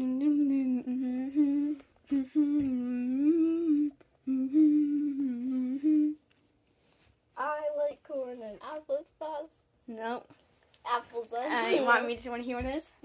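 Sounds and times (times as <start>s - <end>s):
child humming: 0.0s - 6.2s.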